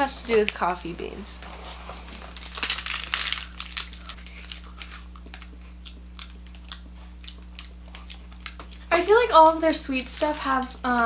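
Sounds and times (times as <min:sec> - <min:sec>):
plastic wrapper crinkling: 0:01.4 - 0:05.6.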